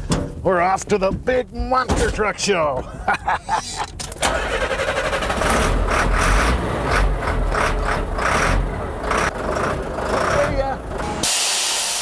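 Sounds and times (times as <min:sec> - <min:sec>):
truck engine rumbling: 0:00.0 - 0:11.3
engine starter cranking: 0:04.0 - 0:08.6.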